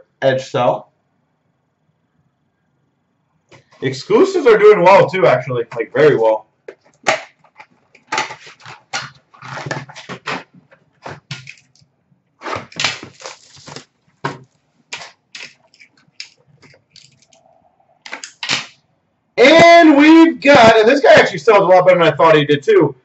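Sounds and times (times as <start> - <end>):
cardboard and plastic wrap crinkling: 6.7 - 11.8, 12.4 - 17.4.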